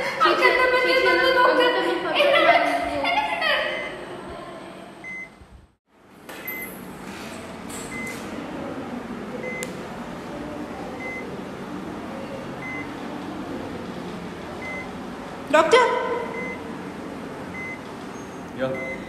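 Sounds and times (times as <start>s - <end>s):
patient monitor beeping: 3.6s - 4.0s, 5.0s - 5.4s, 6.4s - 6.8s, 7.9s - 8.3s, 9.4s - 9.7s, 10.9s - 11.4s, 12.4s - 13.0s, 14.6s - 15.0s, 16.2s - 16.7s, 17.5s - 17.9s, 18.6s - 19.0s.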